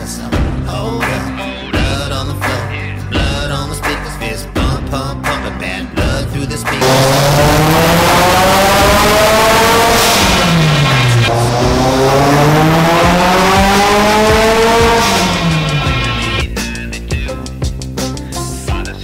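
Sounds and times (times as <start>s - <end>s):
car engine revving hard: 6.8s - 16.4s.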